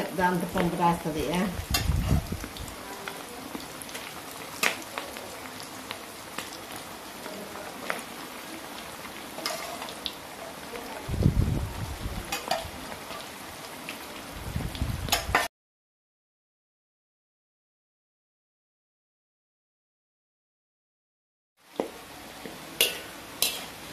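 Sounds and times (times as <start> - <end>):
meat deep-frying in oil: 0.0 - 15.5, 21.6 - 23.9.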